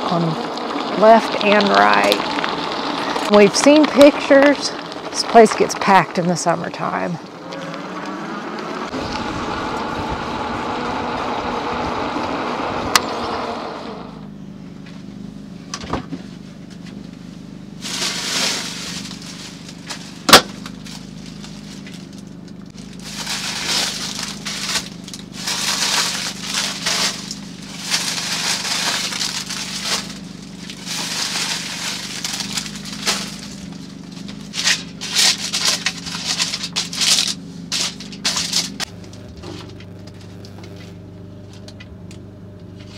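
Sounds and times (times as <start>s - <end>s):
foil crinkling and rustling: 0.0s - 6.0s, 17.8s - 41.8s
electric bike motor whining: 0.0s - 42.9s
low steady hum: 0.0s - 42.9s
tyres on gravel: 0.0s - 42.9s.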